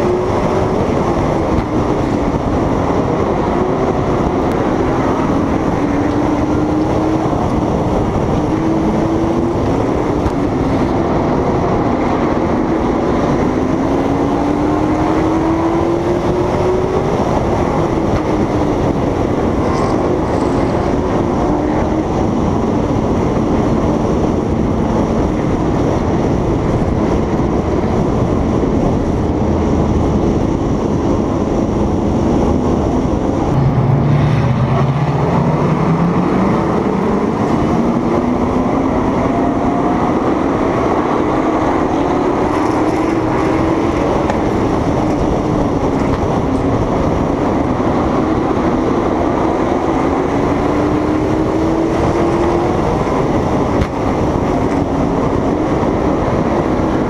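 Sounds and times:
race car engine: 0.0 - 57.0
wind and road rush: 0.0 - 57.0.

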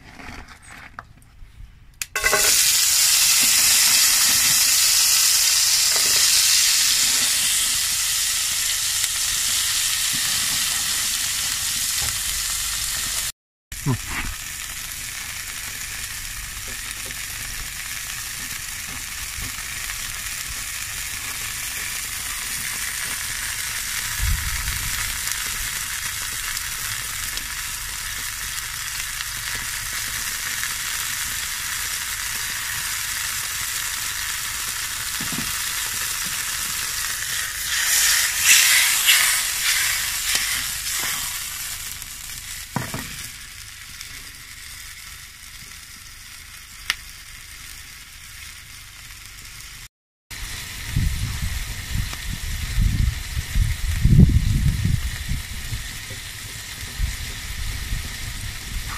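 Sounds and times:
mushrooms sizzling in a frying pan: 2.1 - 58.9
pan knocking: 2.2 - 2.6.

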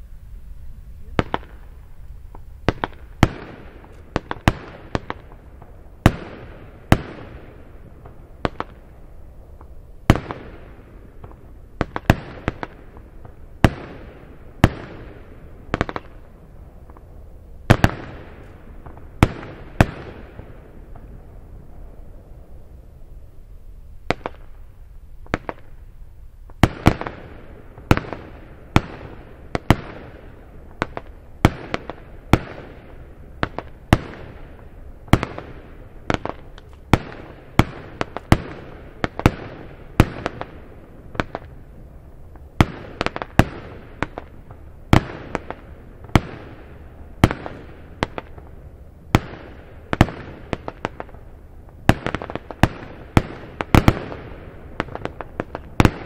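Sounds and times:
fireworks banging: 0.9 - 8.9, 9.6 - 16.2, 26.5 - 56.0.

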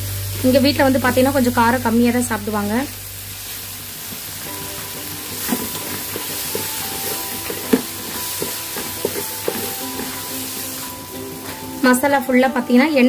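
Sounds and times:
masala sizzling in pan: 0.0 - 13.0
soft background music: 0.0 - 13.0
spatula knocking and scraping pan: 4.1 - 12.2.

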